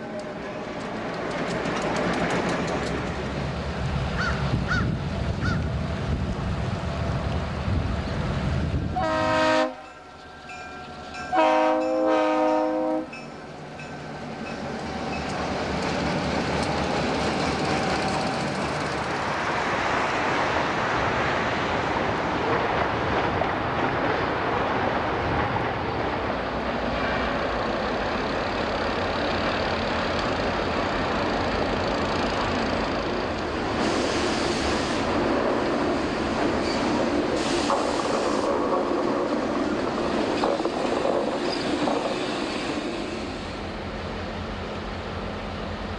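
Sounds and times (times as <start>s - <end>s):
train rumble: 0.0s - 45.9s
locomotive air horn blast: 8.9s - 10.0s, 11.3s - 13.2s.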